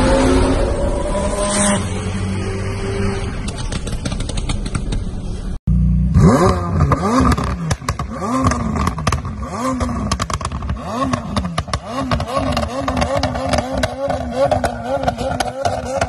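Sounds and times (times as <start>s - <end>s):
car engine revving in blips: 6.1s - 16.0s.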